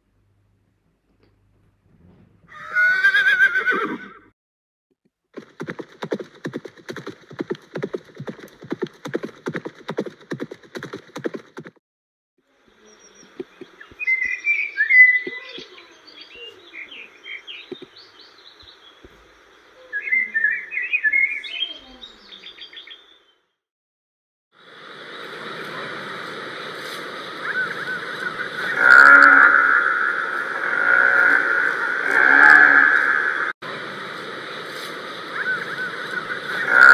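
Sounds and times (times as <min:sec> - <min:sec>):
outdoor noise: 0:00.0 - 0:04.3, 0:04.9 - 0:11.8, 0:12.4 - 0:23.6, 0:24.5 - 0:36.9
birds chirping: 0:12.5 - 0:23.5, 0:24.7 - 0:36.9
bison bellowing: 0:28.6 - 0:33.4, 0:36.6 - 0:36.9.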